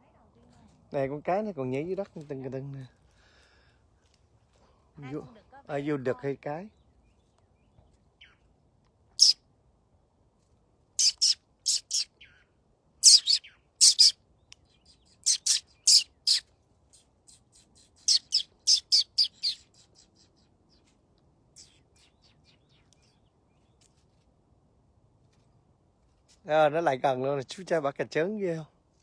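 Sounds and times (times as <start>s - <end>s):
bird sharp high calls: 7.5s - 8.5s, 9.2s - 9.4s, 11.0s - 20.9s, 21.6s - 23.8s.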